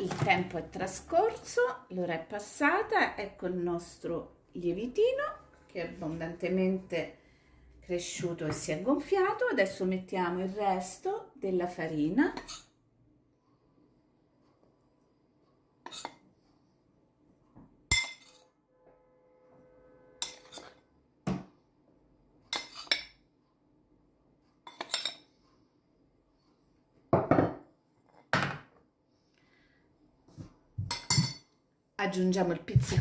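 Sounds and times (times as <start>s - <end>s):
metal spoon clinking on bowls: 17.9s - 18.5s, 20.2s - 20.8s, 22.5s - 23.2s, 24.6s - 25.3s, 30.9s - 31.6s.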